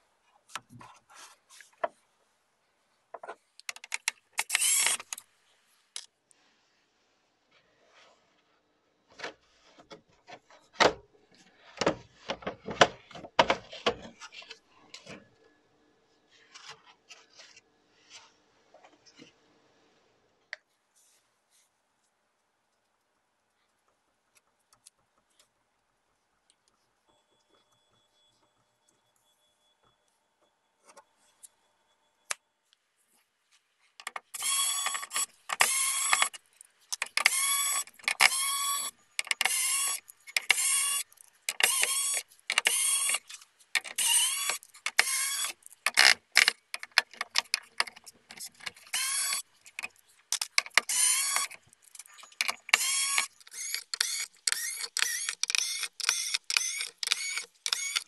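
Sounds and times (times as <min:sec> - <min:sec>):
electric screwdriver whirring: 0:04.4 - 0:05.2, 0:34.4 - 0:36.4, 0:37.1 - 0:43.2, 0:43.8 - 0:46.5, 0:48.8 - 0:49.4, 0:50.7 - 0:51.6, 0:52.4 - 0:58.0.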